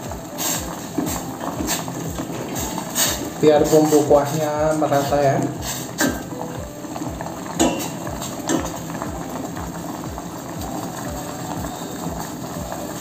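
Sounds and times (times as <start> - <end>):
broth boiling in a pot: 0.0 - 13.0
spoon knocking against pot: 7.6 - 8.8.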